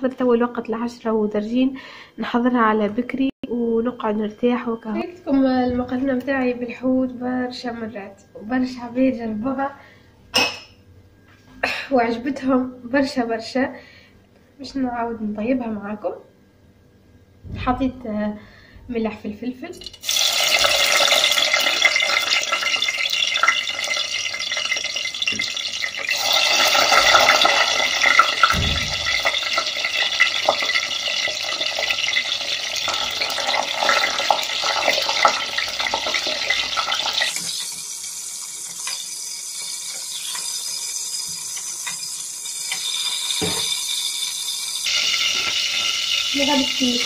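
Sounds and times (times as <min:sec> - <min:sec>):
tap running into sink: 0:28.4 - 0:29.8, 0:42.7 - 0:43.8.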